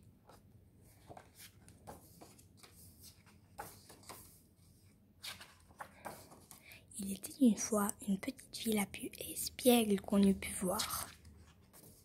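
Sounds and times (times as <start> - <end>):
book pages rustling: 0.2 - 6.6, 10.2 - 12.0.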